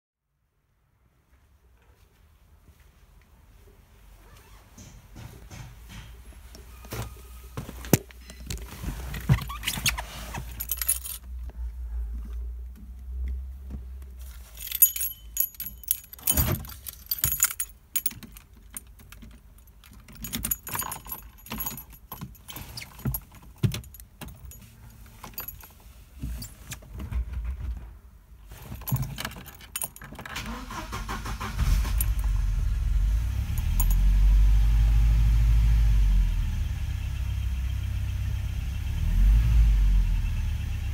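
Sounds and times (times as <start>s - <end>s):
keys jangling: 9.4s - 11.4s, 14.3s - 25.8s, 28.6s - 34.2s
clicks and knocks in a car: 15.6s - 24.6s
car engine starting and idling: 30.3s - 40.9s.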